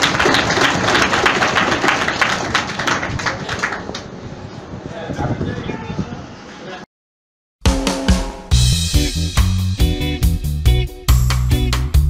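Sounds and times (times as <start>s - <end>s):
audience applause: 0.0s - 4.1s.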